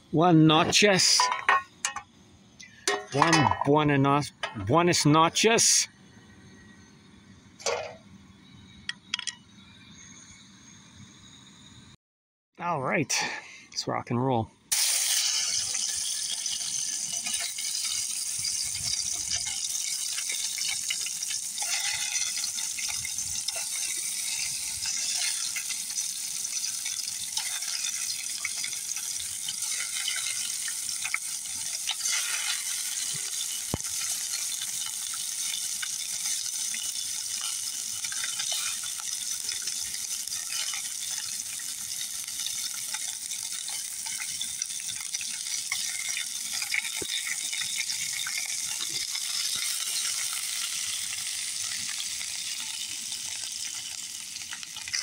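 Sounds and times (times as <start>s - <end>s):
fish frying in hot oil: 14.7s - 55.0s.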